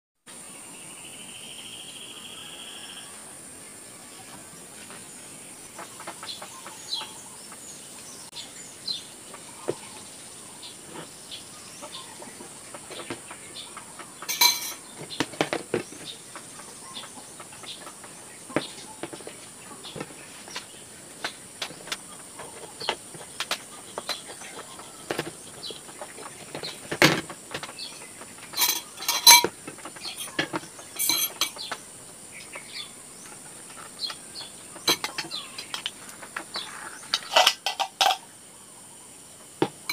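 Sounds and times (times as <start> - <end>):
utensils and dishes clinking: 14.2 - 16.0, 28.4 - 31.8, 34.8 - 35.9, 37.0 - 38.2.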